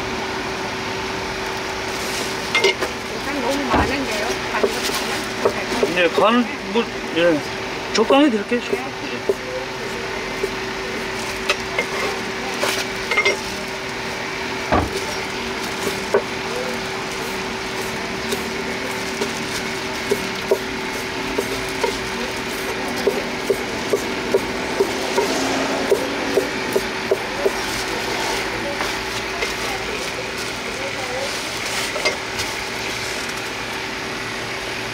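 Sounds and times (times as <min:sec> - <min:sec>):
low hum: 0:18.8 - 0:30.0.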